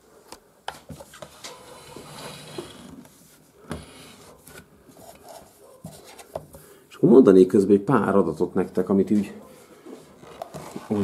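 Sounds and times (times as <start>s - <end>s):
soft rustling: 8.9s - 11.0s.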